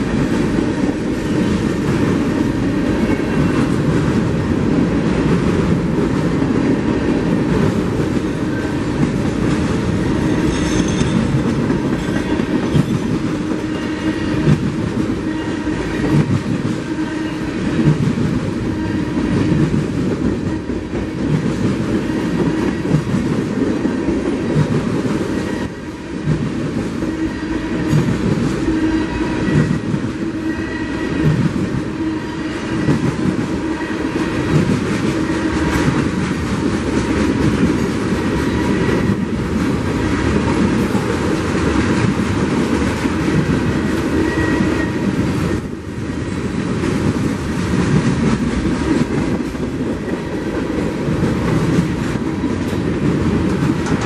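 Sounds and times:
clickety-clack over rail joints: 0.0 - 54.0
steel wheels rumbling on rail: 0.0 - 54.0.

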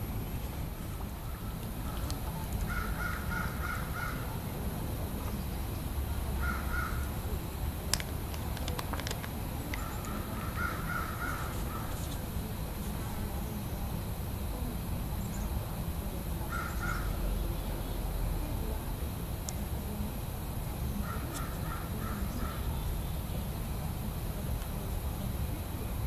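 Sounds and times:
paint jar clicks: 7.9 - 9.8.

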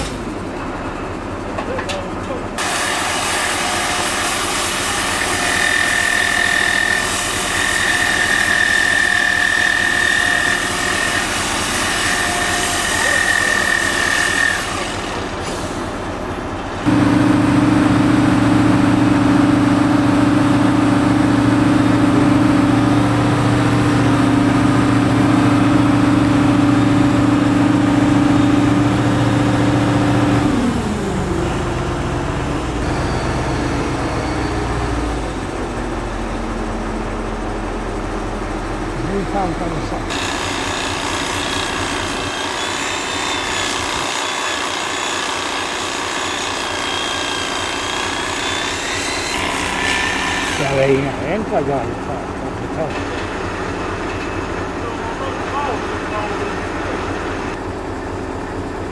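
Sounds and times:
crane engine hum: 0.0 - 5.3, 14.6 - 41.2, 49.6 - 58.9.

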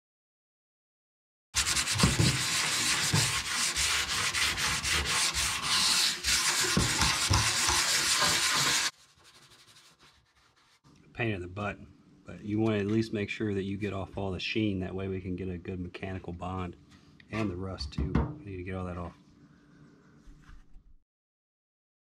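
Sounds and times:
sanding sheet metal: 1.6 - 10.8.

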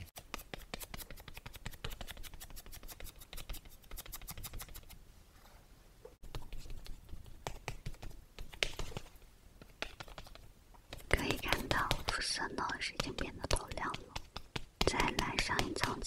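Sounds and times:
makeup puff patting: 6.3 - 16.0.

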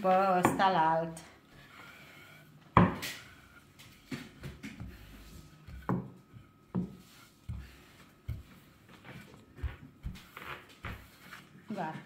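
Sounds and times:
rolling pin knocking on board: 2.8 - 3.2, 4.1 - 8.5.

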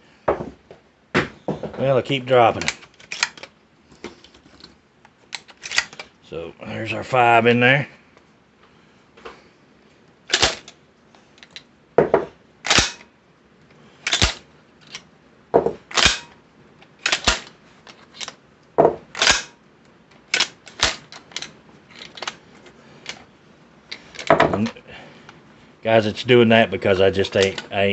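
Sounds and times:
shotgun slide clacking: 2.6 - 3.6, 5.3 - 6.1, 10.3 - 10.8, 12.6 - 13.0, 14.0 - 15.0, 15.9 - 18.4, 19.1 - 19.5, 20.3 - 22.4.

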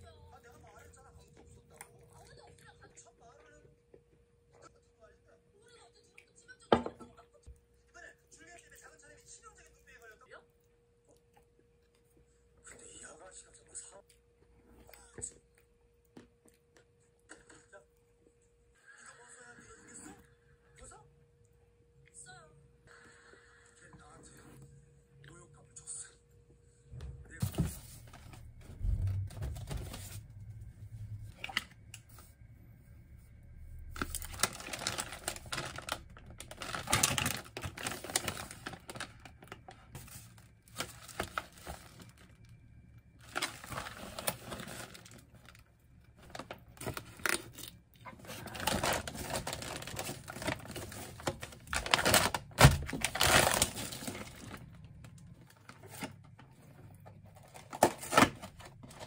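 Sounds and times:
plastic packaging crinkling: 33.8 - 42.6, 43.2 - 56.4, 57.3 - 59.0.

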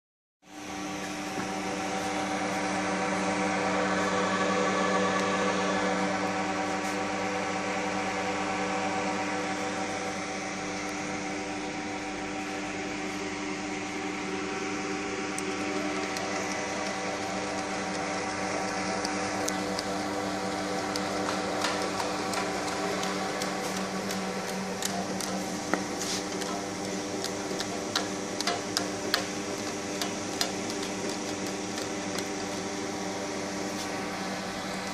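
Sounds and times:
feeder machine motor hum: 0.5 - 34.9
sharp clicks of cartons feeding: 20.9 - 32.6.

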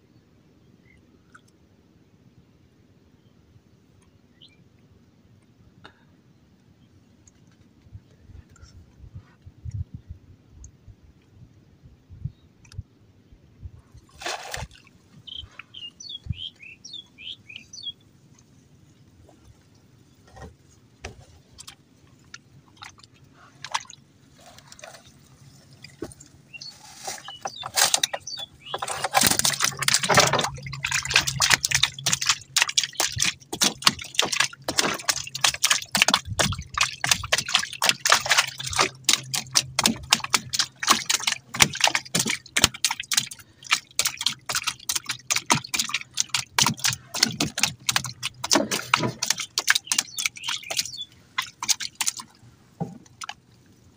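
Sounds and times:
fish flapping in shallow water: 14.0 - 16.5, 20.2 - 53.8.

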